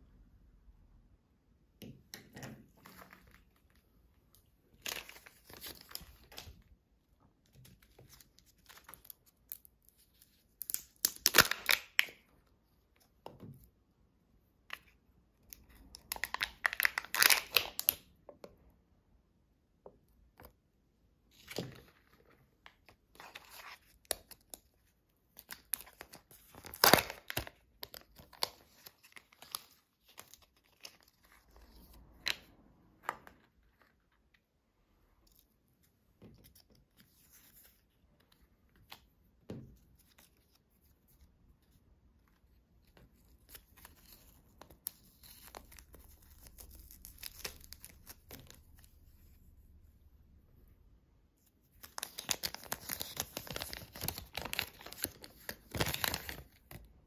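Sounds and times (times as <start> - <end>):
wrapper tearing and crinkling: 10.6 - 12.1, 16.1 - 18.0, 25.5 - 31.2, 44.8 - 48.6, 51.8 - 56.7.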